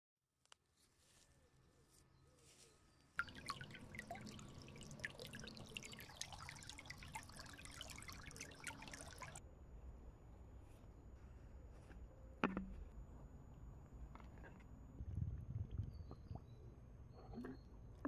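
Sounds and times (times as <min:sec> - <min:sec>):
stream babbling over stones: 0:03.2 - 0:09.4.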